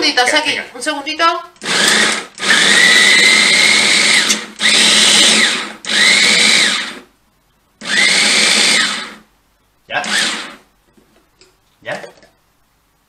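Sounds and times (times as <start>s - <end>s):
electric food chopper motor whining: 1.6s - 7.0s, 7.8s - 9.2s, 10.0s - 10.6s.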